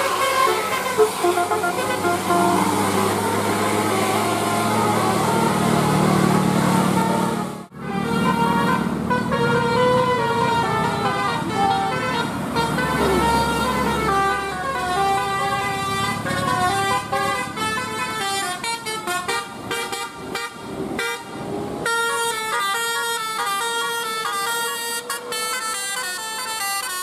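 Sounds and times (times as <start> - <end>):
musical air horn tune: 0.0 - 21.2
vehicle engines rumbling: 0.0 - 27.0.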